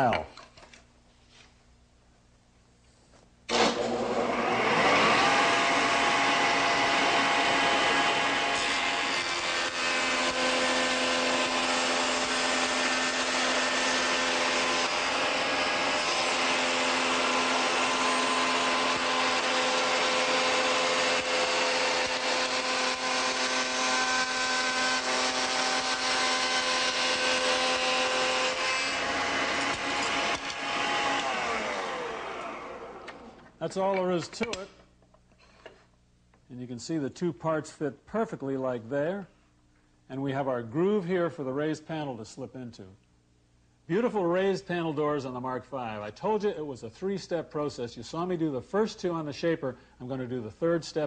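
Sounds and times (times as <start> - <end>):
motor winding down: 3.5 - 33.4
shaper motor cutting wood: 3.5 - 34.7.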